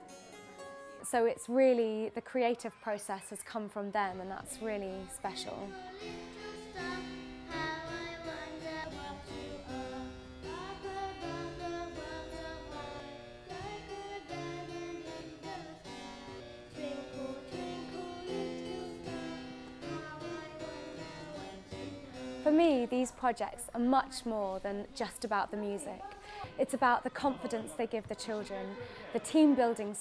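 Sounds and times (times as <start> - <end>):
girl singing: 4.3 - 22.7.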